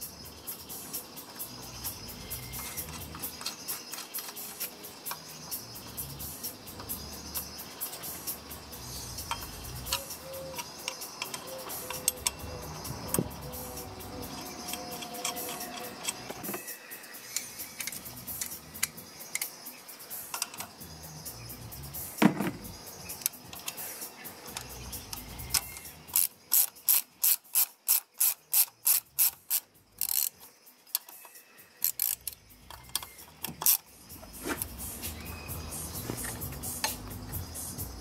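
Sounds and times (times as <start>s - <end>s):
socket ratchet clicking: 6.0s - 21.0s, 21.8s - 37.4s
tool clicking on metal: 9.2s - 16.7s, 17.3s - 19.6s, 24.5s - 33.9s.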